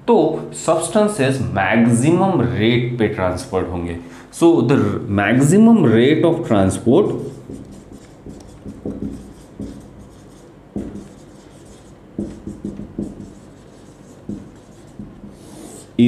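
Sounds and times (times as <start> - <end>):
marker scratching on whiteboard: 7.1 - 16.0.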